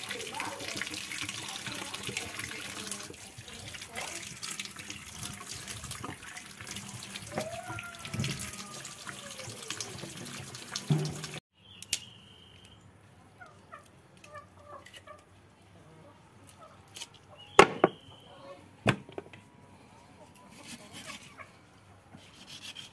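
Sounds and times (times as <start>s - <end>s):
tap water splashing: 0.0s - 11.4s
chicken carcass rubbed in basin: 20.4s - 21.5s, 22.2s - 22.9s.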